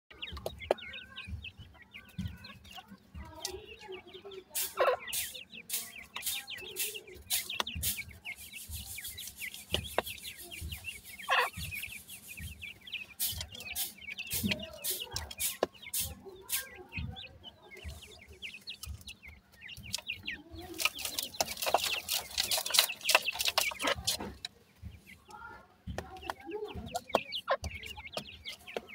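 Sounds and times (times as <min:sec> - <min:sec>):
chicks chirping: 0:00.1 - 0:28.9
pecking clicks and dust rustling: 0:18.0 - 0:24.6.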